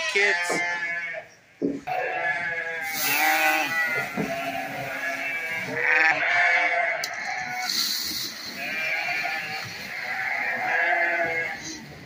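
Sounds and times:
sheep bleating: 0.0 - 7.8, 8.4 - 12.0.

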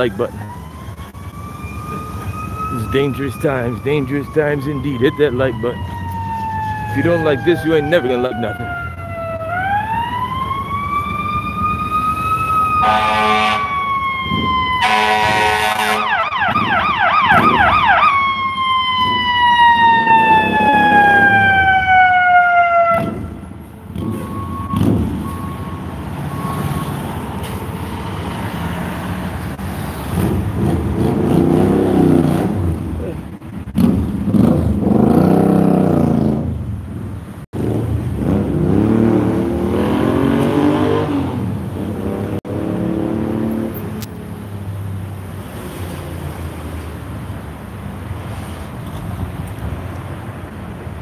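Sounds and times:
siren wailing and yelping: 0.0 - 27.4
street traffic passing: 0.0 - 51.0
short horn blasts: 12.8 - 13.7, 14.8 - 16.2.

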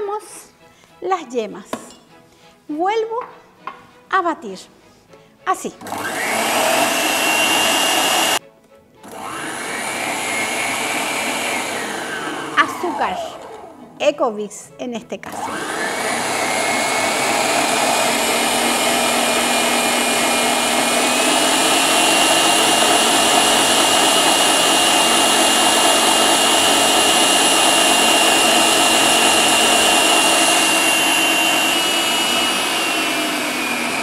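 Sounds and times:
stand mixer motor whine: 5.8 - 8.4, 9.1 - 13.8, 15.3 - 34.0.

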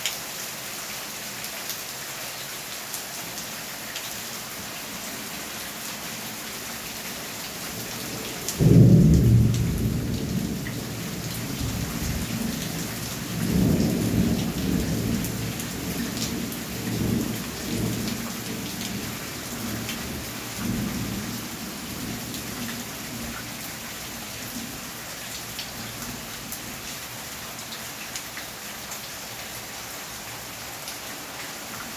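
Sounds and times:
rain on concrete and gravel: 0.0 - 31.9.

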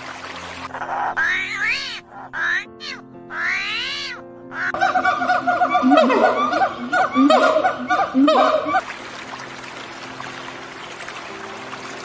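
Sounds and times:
primate chattering calls: 0.7 - 8.8.

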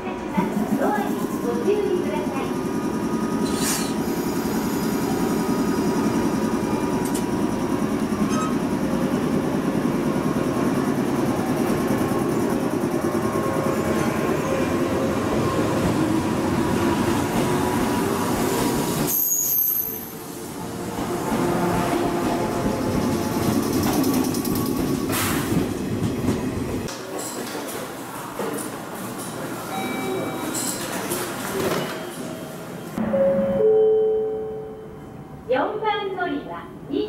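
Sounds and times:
train wheels rumbling: 0.0 - 27.2.

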